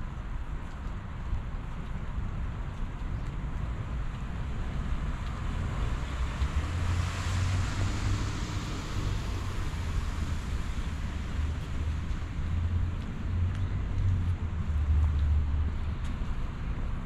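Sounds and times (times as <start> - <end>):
tyres hissing on wet road: 4.3 - 13.5.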